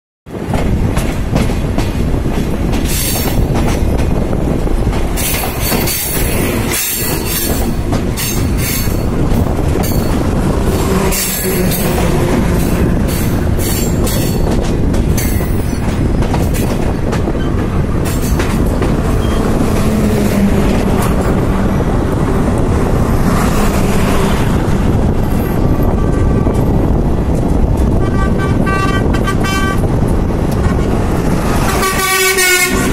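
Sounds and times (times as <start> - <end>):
train wheels rumbling on track: 0.3 - 32.9
high-pitched clatter and squeal: 2.7 - 4.1, 5.1 - 21.4.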